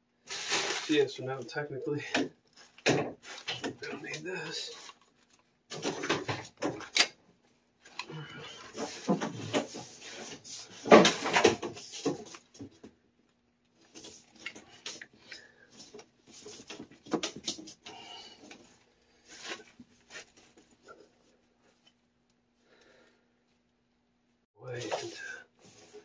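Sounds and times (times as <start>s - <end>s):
tubing handling knocks and rustles: 0.3s - 7.0s, 7.8s - 13.0s, 13.8s - 21.9s.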